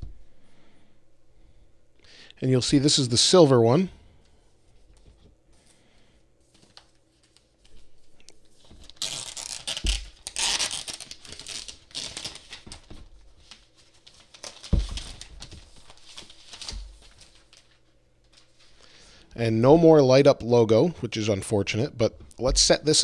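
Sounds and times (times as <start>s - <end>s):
plastic wrap rustling and crinkling: 6.4s - 18.8s.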